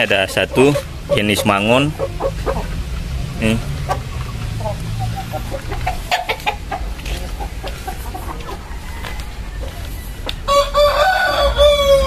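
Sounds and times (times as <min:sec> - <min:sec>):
chickens clucking: 0:00.0 - 0:12.0
rooster crowing: 0:08.5 - 0:12.0.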